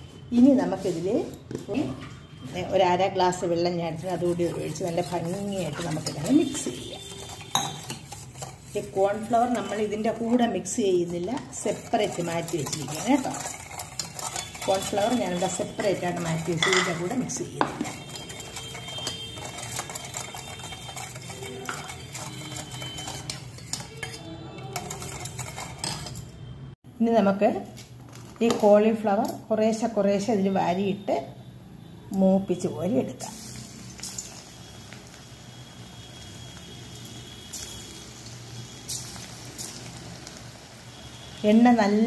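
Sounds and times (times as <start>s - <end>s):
ladle stirring sauce in steel bowl: 0.6s - 26.4s
deep-frying sizzle in oil: 2.6s - 26.2s, 32.2s - 42.0s
metal clinks and scrapes: 11.6s - 26.4s.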